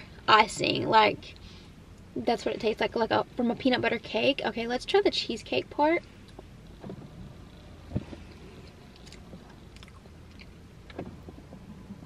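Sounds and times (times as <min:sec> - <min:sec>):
low steady hum: 0:00.0 - 0:12.0
person chewing: 0:08.6 - 0:11.0.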